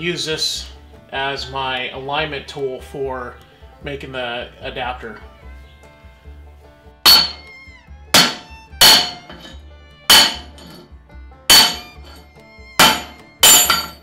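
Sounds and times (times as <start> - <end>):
hammer striking metal: 7.1 - 10.9, 11.5 - 14.0.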